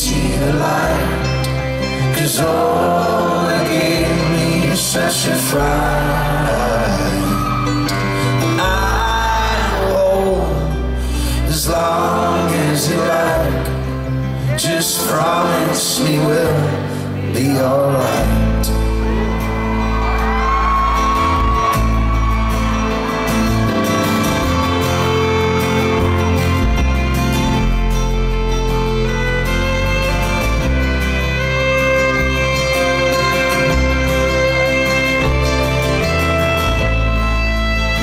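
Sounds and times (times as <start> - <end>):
wordless singing: 0.0 - 7.6, 8.5 - 18.6
folk-rock band playing: 0.0 - 38.0
people whooping: 6.8 - 9.2, 18.9 - 26.6.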